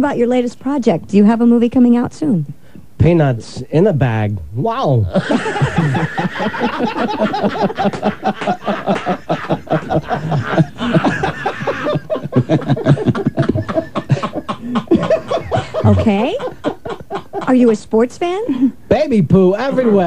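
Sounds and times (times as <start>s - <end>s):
people laughing: 5.1s - 17.8s, 19.6s - 20.0s.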